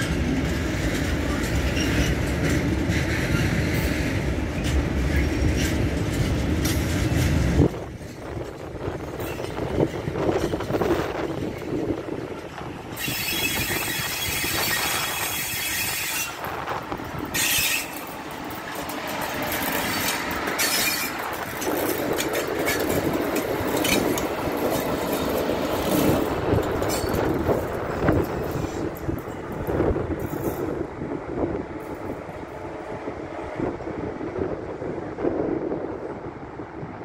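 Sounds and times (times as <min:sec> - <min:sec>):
train wheels rumbling and clicking: 0:00.0 - 0:37.0
high wheel squeal: 0:12.9 - 0:16.6, 0:17.3 - 0:18.2, 0:19.8 - 0:21.2.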